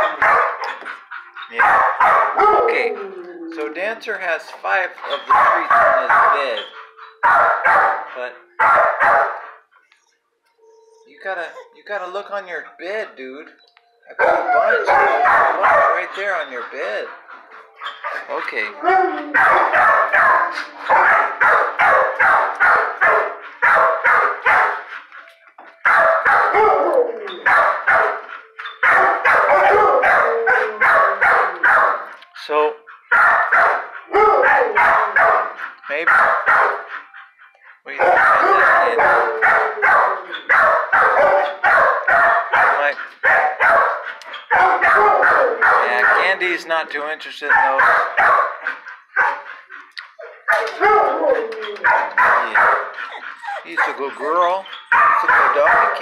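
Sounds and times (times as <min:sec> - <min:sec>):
dog barking: 0:00.0 - 0:03.0, 0:05.0 - 0:09.6, 0:14.2 - 0:17.0, 0:17.8 - 0:24.9, 0:25.8 - 0:32.2, 0:33.0 - 0:37.2, 0:37.9 - 0:46.5, 0:47.5 - 0:49.5, 0:50.2 - 0:56.0.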